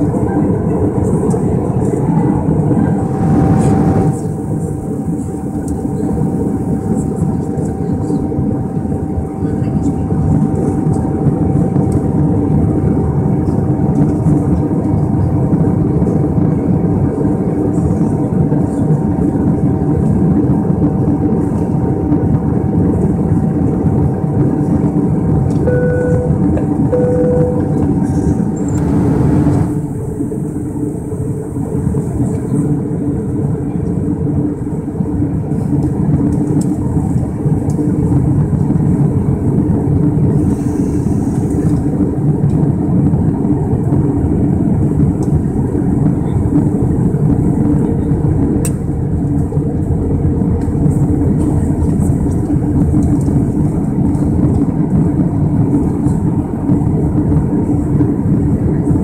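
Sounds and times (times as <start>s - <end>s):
airplane cabin roar: 0.0s - 59.0s
steady whine: 0.0s - 59.0s
short beeps: 25.7s - 27.8s.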